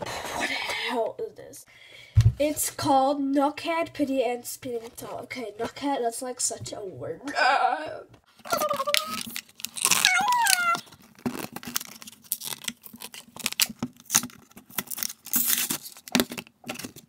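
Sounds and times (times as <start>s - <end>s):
packaging tearing and crinkling: 8.4s - 17.0s.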